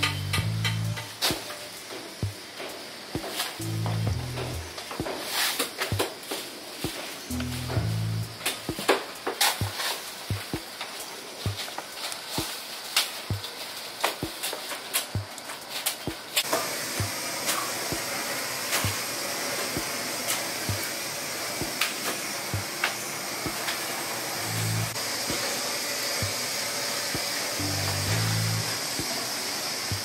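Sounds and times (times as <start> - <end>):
steady hiss: 0.0 - 30.0.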